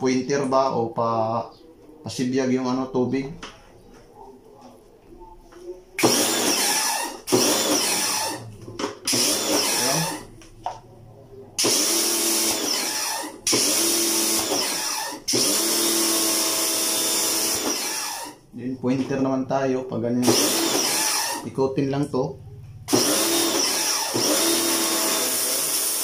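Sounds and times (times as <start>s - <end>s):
pressure washer motor humming: 6.0s - 8.4s, 9.1s - 10.2s, 11.6s - 18.3s, 22.9s - 26.0s.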